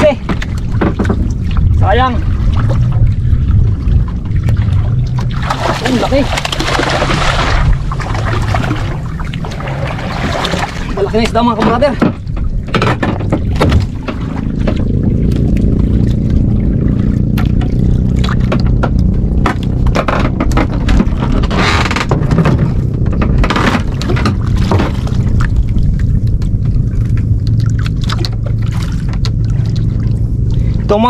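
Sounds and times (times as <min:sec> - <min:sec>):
boat engine droning: 0:00.0 - 0:31.0
clicks and knocks of fishing line: 0:06.3 - 0:07.2.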